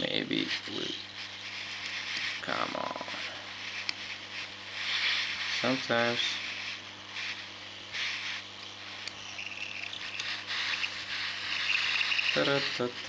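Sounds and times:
hot air gun hissing: 3.2s - 13.0s.

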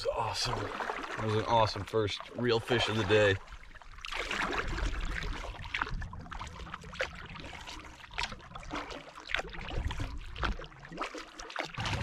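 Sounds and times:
paddle splashing in water: 0.0s - 12.0s.

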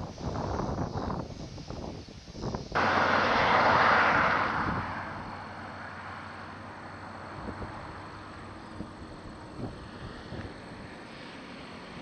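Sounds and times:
wind rushing: 2.5s - 8.2s
low motorcycle rumble: 2.8s - 10.8s.

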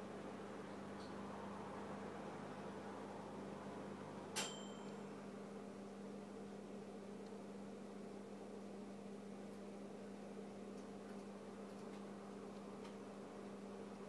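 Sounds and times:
aquarium pump electric hum: 0.0s - 14.0s.

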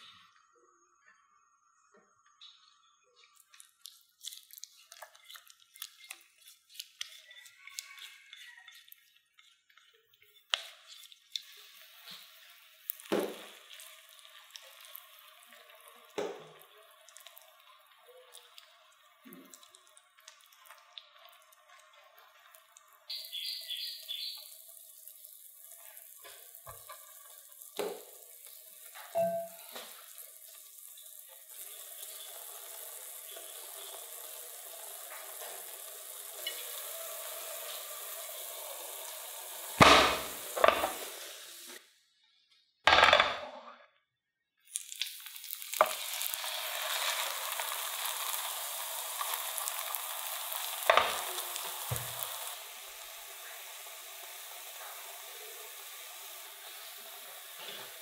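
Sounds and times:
oil sizzling in a pan: 0.0s - 41.9s, 44.6s - 58.0s
plate clattering on a pan: 39.8s - 41.0s, 42.9s - 43.5s.

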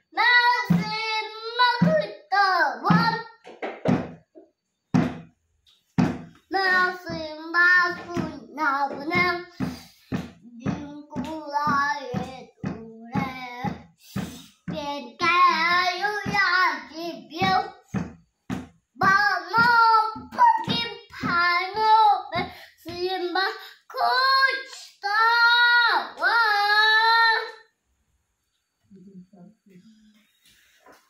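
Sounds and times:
child singing: 0.0s - 3.4s, 6.5s - 18.0s, 19.0s - 27.6s.

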